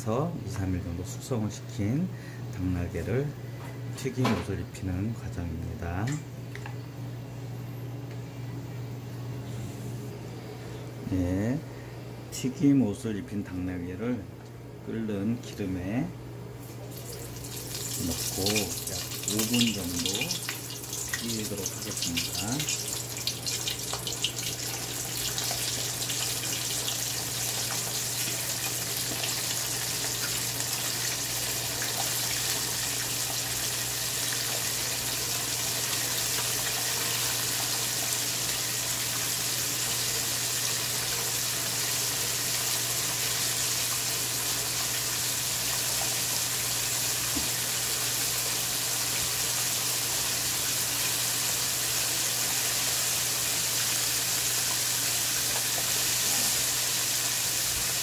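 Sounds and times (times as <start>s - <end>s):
food deep-frying in hot oil: 16.7s - 58.0s.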